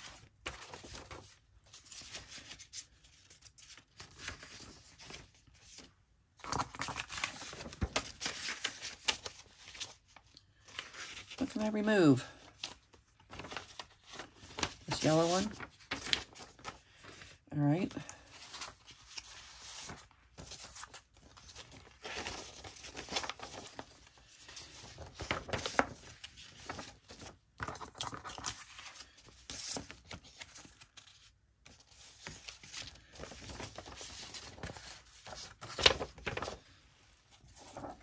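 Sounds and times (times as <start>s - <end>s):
paper rustling and crinkling: 0.0s - 38.0s.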